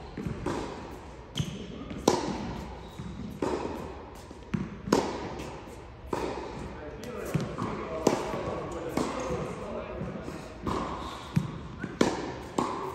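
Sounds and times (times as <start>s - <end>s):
tennis balls bouncing on court: 0.1s - 12.9s
tennis balls struck by racquets: 0.2s - 12.9s.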